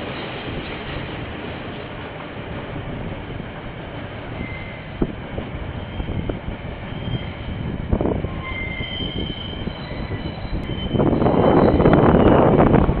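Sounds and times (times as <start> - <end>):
train rolling past: 0.0 - 13.0
faint wheel squeals: 8.4 - 12.4.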